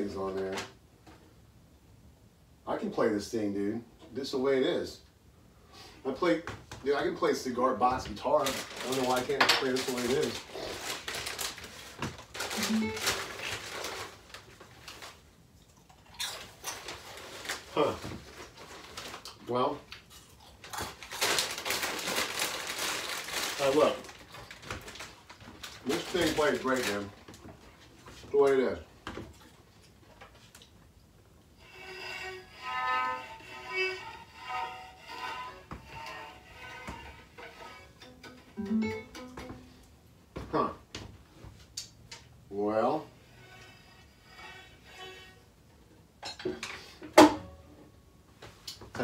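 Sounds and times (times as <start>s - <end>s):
fiddle bowed note: 12.6s - 13.4s, 31.6s - 39.8s, 43.1s - 45.4s.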